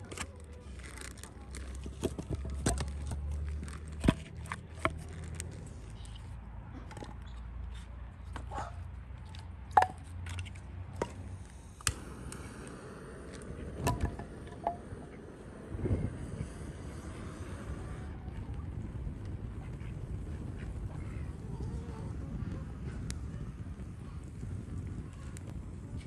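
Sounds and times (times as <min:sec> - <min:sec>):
low steady rumble: 0:09.5 - 0:26.0.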